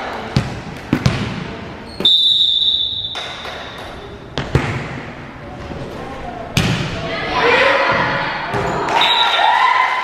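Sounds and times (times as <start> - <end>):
referee's whistle blast: 2.0 - 3.4.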